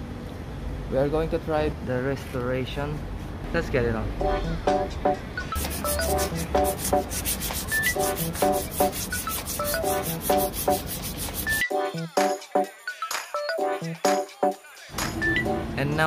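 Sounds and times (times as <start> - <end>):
sandpaper rubbing on metal: 5.6 - 11.6.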